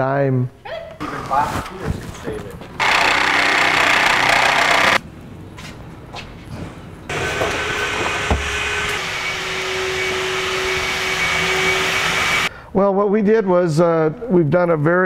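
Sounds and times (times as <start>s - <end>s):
impact driver burst: 2.8s - 5.0s
shop vacuum humming: 2.8s - 5.0s, 7.1s - 12.5s.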